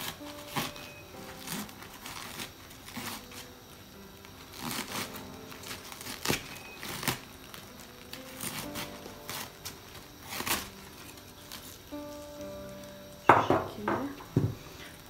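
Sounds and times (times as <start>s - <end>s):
knife cutting crunchy cabbage: 0.0s - 3.5s, 4.5s - 11.8s
soft background music: 0.0s - 15.0s.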